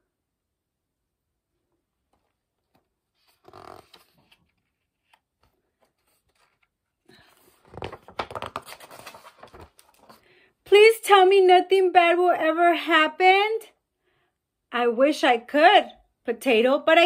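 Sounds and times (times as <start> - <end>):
book pages rustling: 2.1 - 10.3.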